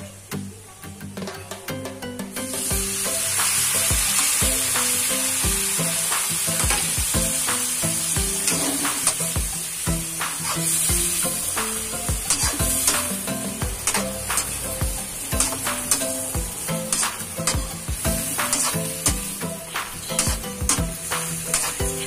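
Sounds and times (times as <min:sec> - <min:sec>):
shrimp sizzling in butter: 0:02.5 - 0:22.0
spatula scraping pan: 0:08.3 - 0:09.4, 0:10.2 - 0:14.7, 0:16.8 - 0:22.0.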